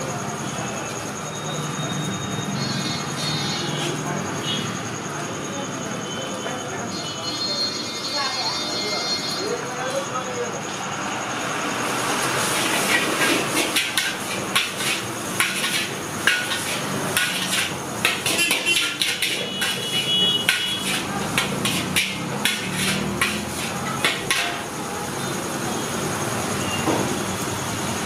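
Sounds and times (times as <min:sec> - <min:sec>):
metal spatula clanging on wok: 0:12.7 - 0:24.7.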